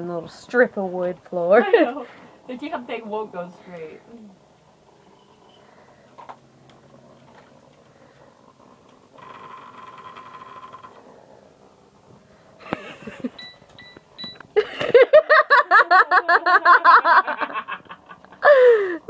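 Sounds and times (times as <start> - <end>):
quick beeps: 13.4 - 14.4.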